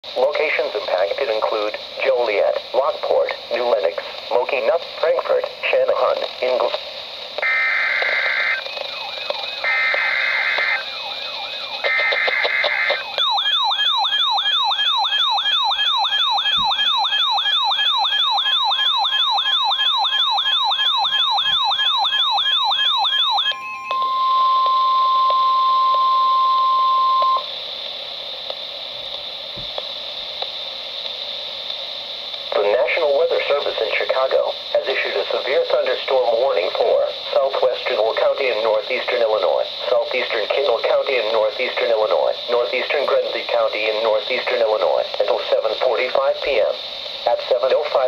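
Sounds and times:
radio hiss: 0.0 - 13.3, 25.9 - 48.0
screechy data tones: 7.4 - 27.5
steady single-pitched alarm tone: 7.4 - 27.5
warbling siren alarm: 7.4 - 27.5.

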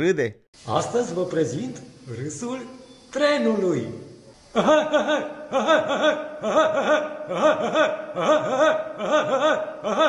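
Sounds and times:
man laughing rhythmically: 4.5 - 10.0.

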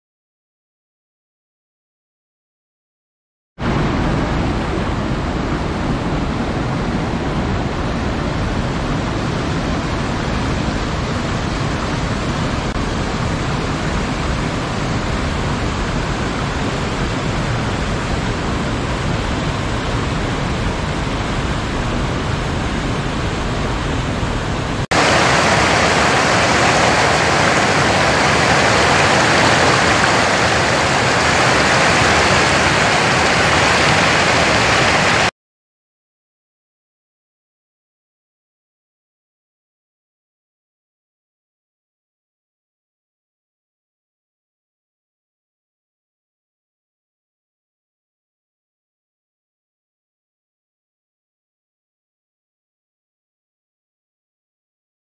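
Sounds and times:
mountain stream rushing: 3.6 - 35.3
falling water rushing: 24.8 - 35.3.

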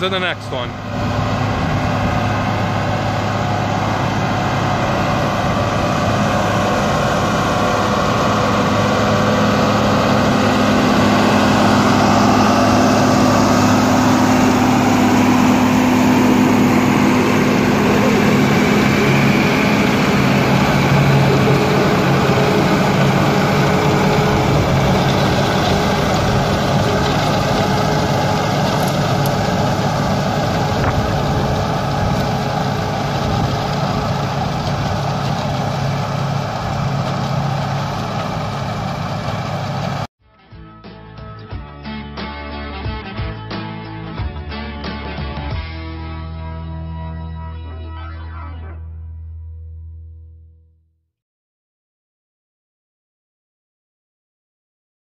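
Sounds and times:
tractor diesel engine: 0.0 - 40.1.

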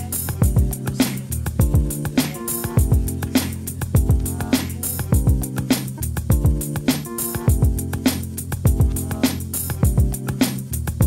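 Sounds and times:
background music: 0.0 - 11.0
deep kick drum hits: 4.0 - 4.3.

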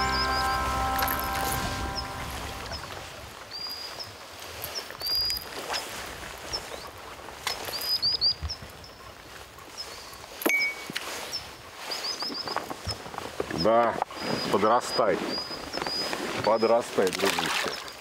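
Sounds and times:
small bird chirping: 14.2 - 16.6.

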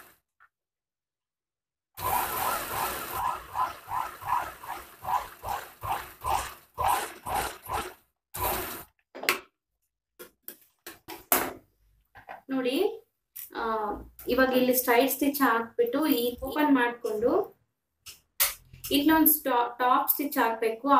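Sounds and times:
sewing machine stitching: 2.0 - 8.9.

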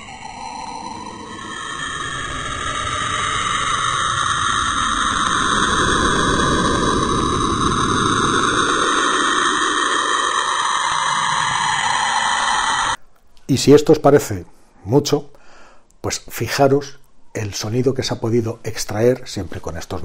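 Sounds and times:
dense hiss with wavering tone: 0.0 - 13.0.

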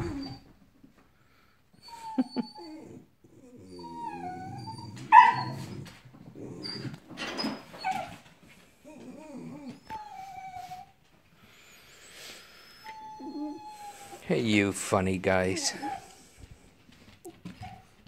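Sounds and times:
dogs whining and whimpering: 0.0 - 0.7, 1.7 - 14.2, 15.6 - 16.4, 17.3 - 18.0
dog yelping: 3.8 - 5.8, 12.9 - 14.1.

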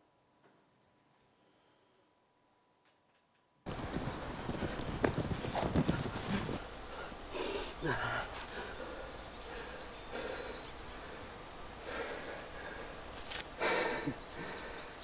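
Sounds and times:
man breathing hard and gasping: 5.9 - 13.0, 13.6 - 15.0.

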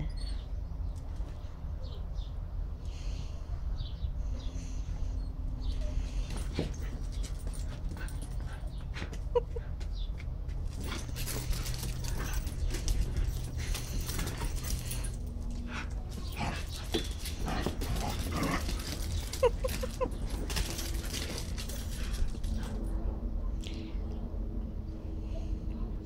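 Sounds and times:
paws scuffling on concrete: 5.6 - 22.9.

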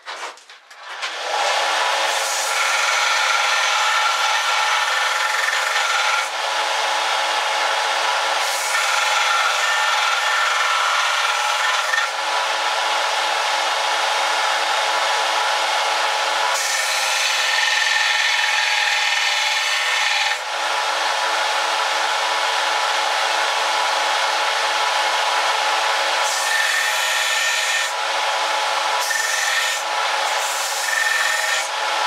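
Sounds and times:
grinder rasping on steel: 1.2 - 13.3, 16.4 - 22.9, 26.1 - 32.0.

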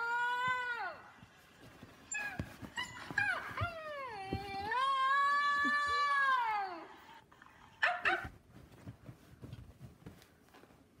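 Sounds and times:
soft scuffling: 0.4 - 5.8, 8.1 - 11.0.

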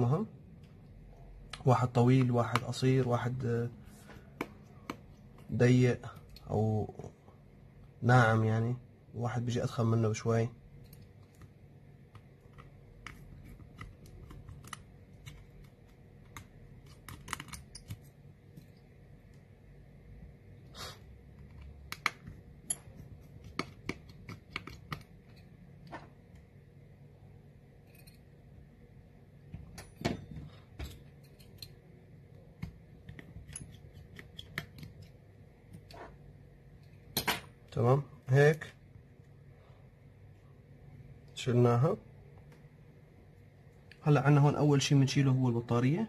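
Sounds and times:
faint steady hum: 0.0 - 46.0
screwdriver and small metal parts clicking: 12.4 - 18.8, 30.8 - 31.8.

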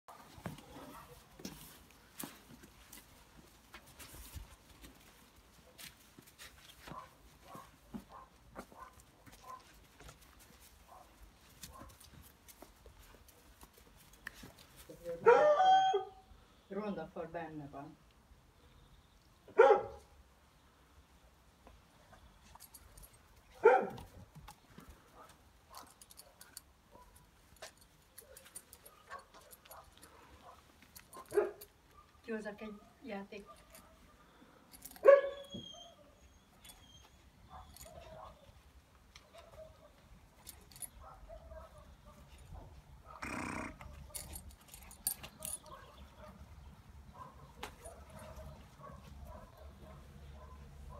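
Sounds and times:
puppy barking: 6.9 - 9.7, 15.2 - 16.2, 19.6 - 20.1, 23.6 - 24.1, 31.2 - 32.2, 35.0 - 36.1, 41.0 - 42.2, 47.1 - 50.9
puppy mouthing a leash: 36.6 - 38.4.

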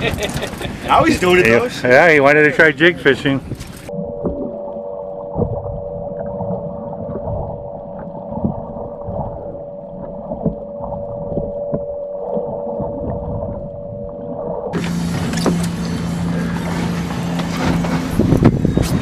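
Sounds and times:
underwater hum and rumble: 3.3 - 19.0
underwater clicks and knocks: 5.3 - 14.8.

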